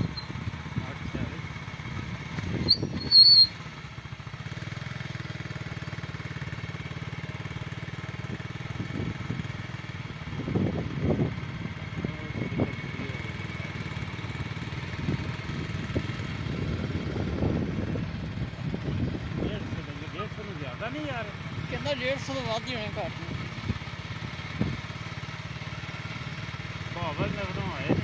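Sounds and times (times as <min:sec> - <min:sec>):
vehicle engine running: 0:00.0 - 0:28.0
wind rumbling on microphone: 0:10.3 - 0:12.9, 0:15.0 - 0:19.8.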